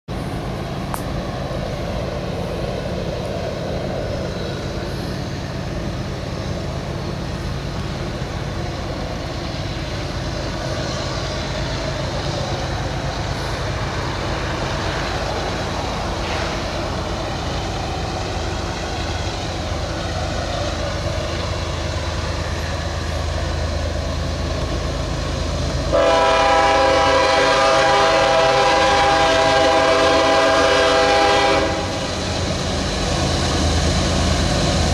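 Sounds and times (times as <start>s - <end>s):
diesel locomotive engine drone: 0.1s - 34.9s
train air horn chord: 25.9s - 32.0s.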